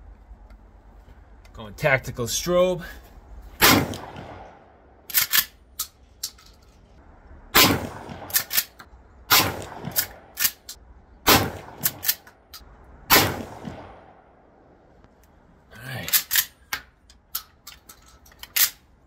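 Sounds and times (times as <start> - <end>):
shotgun shots: 3.6 - 4.7, 7.6 - 10.6, 11.3 - 12.2, 13.1 - 14.2.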